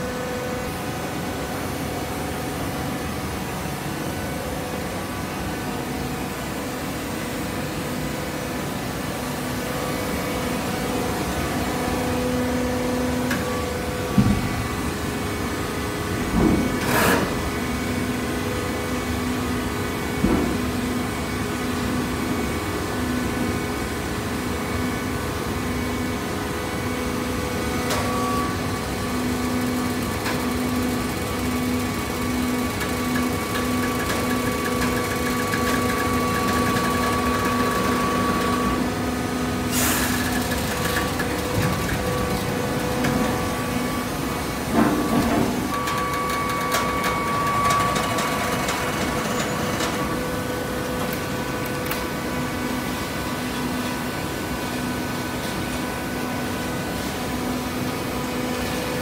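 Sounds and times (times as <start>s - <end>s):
hydraulic baler humming: 27.5s - 54.7s.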